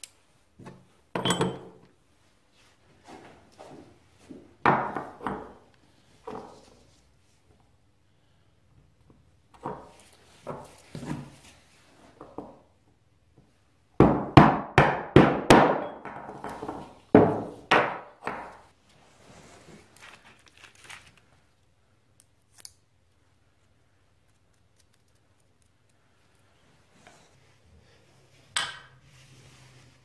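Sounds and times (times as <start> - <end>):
metal parts knocking on workbench: 1.2 - 1.8
paper rustling: 19.2 - 21.5.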